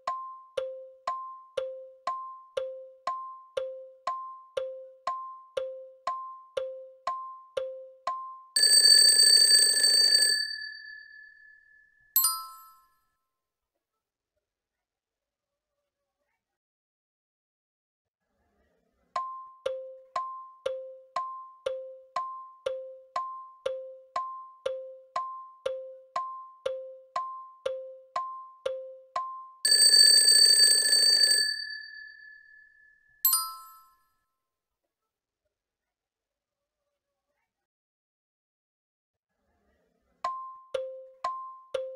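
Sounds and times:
timer beep: 0.0s - 8.7s, 19.2s - 29.7s
alarm bell ringing: 8.6s - 12.8s, 29.6s - 33.9s
bright chime: 10.6s - 12.9s.

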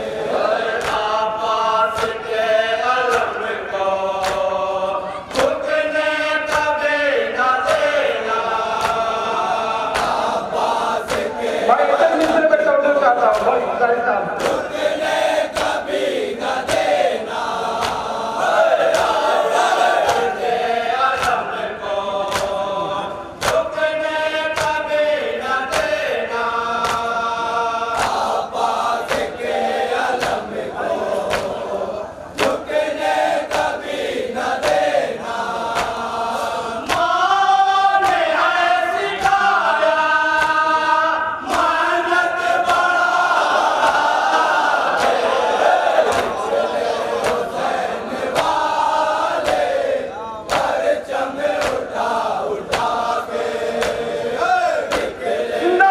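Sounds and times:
men chanting a lament: 0.0s - 55.9s.

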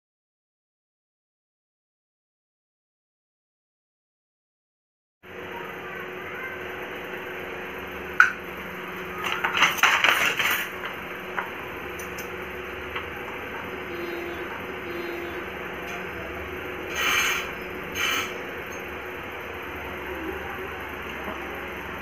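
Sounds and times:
steady background hum: 5.2s - 22.0s
wooden handloom clattering: 9.2s - 11.5s.

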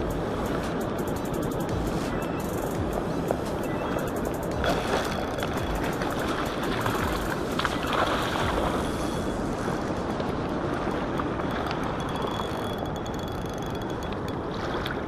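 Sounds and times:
river water rushing over gravel: 0.0s - 11.1s
wind on microphone: 0.0s - 15.0s.

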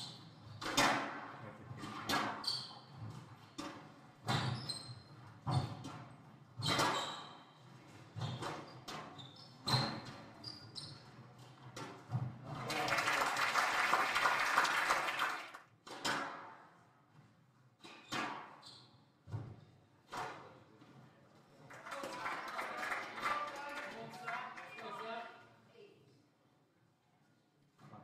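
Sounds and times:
court shoes squeaking: 0.0s - 0.6s, 2.1s - 12.3s, 17.8s - 20.5s
crowd applauding: 12.5s - 15.6s, 21.7s - 25.2s.

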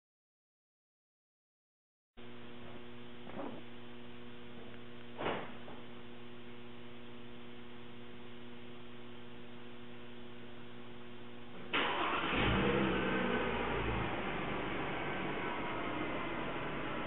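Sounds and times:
electrical hum: 2.2s - 17.0s
car engine cranking and starting: 11.7s - 17.0s.

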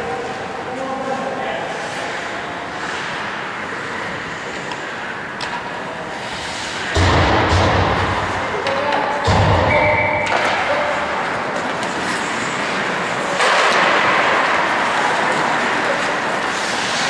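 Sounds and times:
skates scraping ice: 0.0s - 6.9s, 10.2s - 17.0s
hockey sticks and puck knocking: 7.4s - 17.0s.

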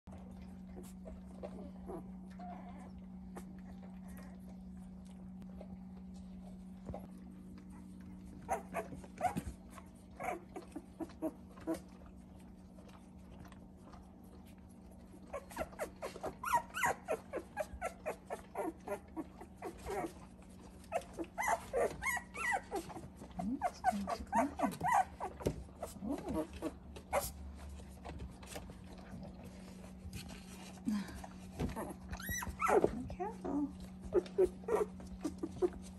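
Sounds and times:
steady low hum: 0.1s - 35.9s
puppies squeaking and whimpering: 8.4s - 11.9s, 15.2s - 27.5s, 31.6s - 35.9s.

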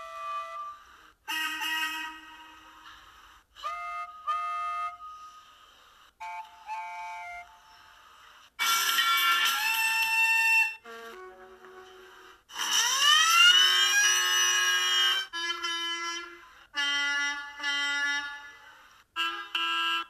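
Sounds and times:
cartoon steam whistle: 8.6s - 18.2s
horn blasts: 8.6s - 20.0s.

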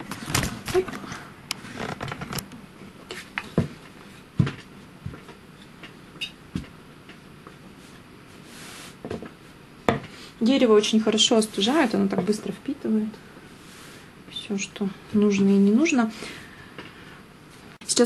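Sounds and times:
hand rubbing fabric: 7.7s - 9.1s.

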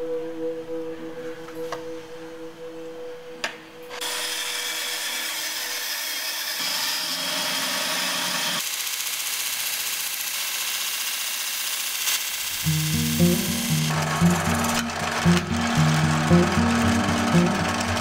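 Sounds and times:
bandsaw cutting wood: 4.0s - 18.0s
belt sander grinding: 4.0s - 18.0s.

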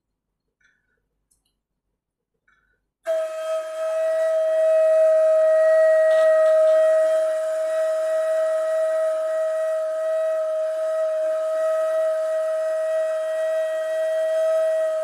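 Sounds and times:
reed flute long held note: 3.1s - 15.0s.

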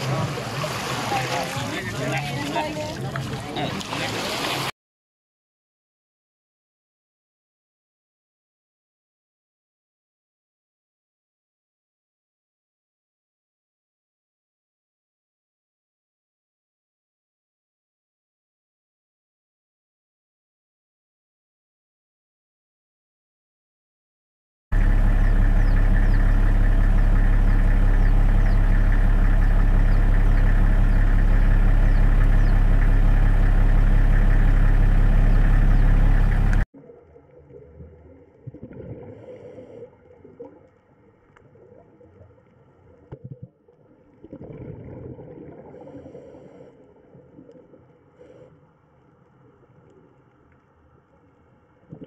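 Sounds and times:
low engine-like drone: 24.8s - 38.4s
faint low rumbles: 24.8s - 52.0s.

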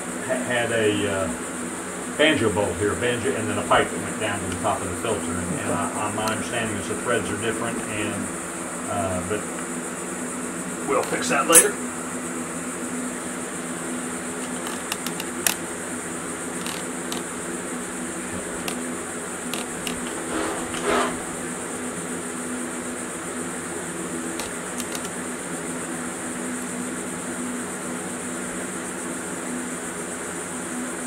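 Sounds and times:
mechanical fan hum: 0.0s - 31.0s
rag wiping scuff: 20.1s - 21.3s
light clicks of engine parts: 24.4s - 25.2s.

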